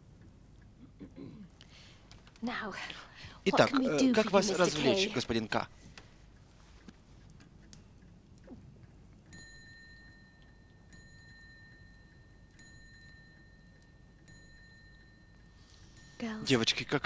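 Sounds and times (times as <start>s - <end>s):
faint low hum: 0.0s - 17.0s
small high-pitched bell ringing: 9.3s - 17.0s.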